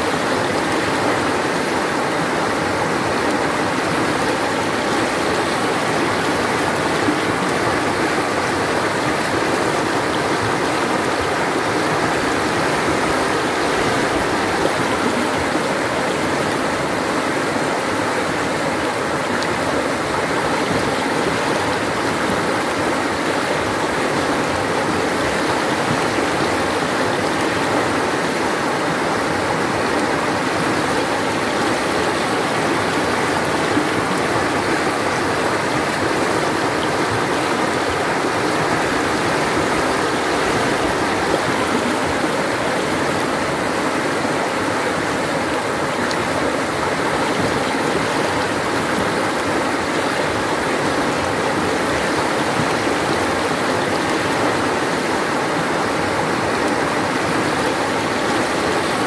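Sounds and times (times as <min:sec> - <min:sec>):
river rapids rushing: 0:00.0 - 0:59.0.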